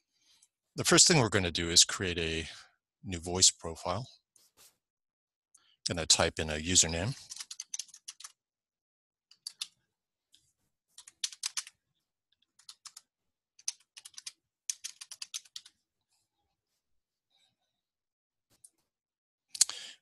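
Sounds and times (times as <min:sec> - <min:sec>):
typing on computer keyboard: 0:07.2 - 0:08.4, 0:09.3 - 0:09.7, 0:11.0 - 0:11.7, 0:12.6 - 0:15.7.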